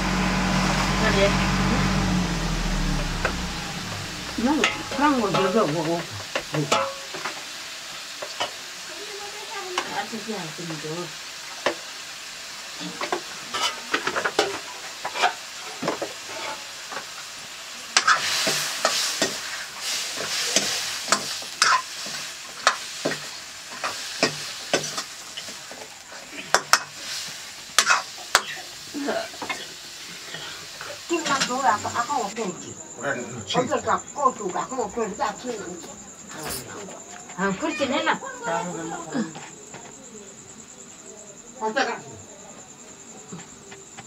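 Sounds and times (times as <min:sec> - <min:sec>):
meat sizzling in a wok: 0:00.0 - 0:32.9
metal spatula scraping a pan: 0:03.8 - 0:07.4, 0:12.7 - 0:17.0, 0:18.0 - 0:28.7.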